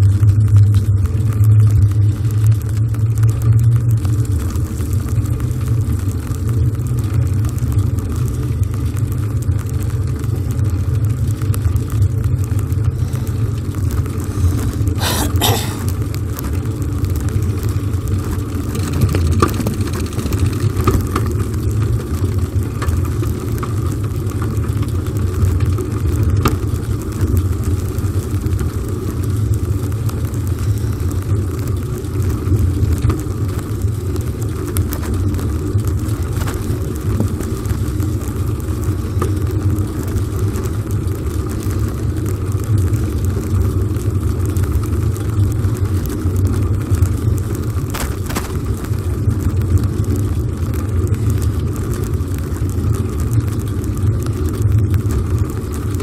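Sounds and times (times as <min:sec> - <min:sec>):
bicycle tyres rolling on wet asphalt: 0:00.0 - 0:15.0, 0:15.9 - 0:56.0.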